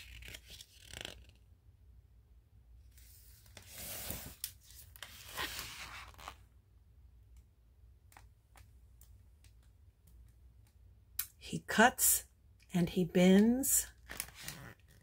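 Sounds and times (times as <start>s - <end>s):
paper page turning: 0.0s - 1.4s, 3.0s - 6.4s, 14.0s - 15.0s.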